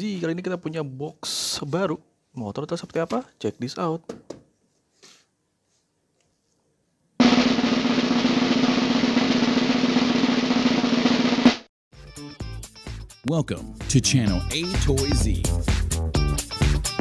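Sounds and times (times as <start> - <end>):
fast snare drum roll: 7.2 - 11.7.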